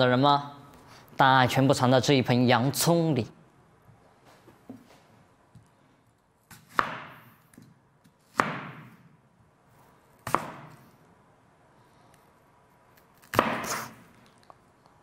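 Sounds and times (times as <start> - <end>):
knife chopping onion on wooden board: 6.5 - 7.4, 8.0 - 9.0, 10.2 - 10.9, 13.2 - 14.0.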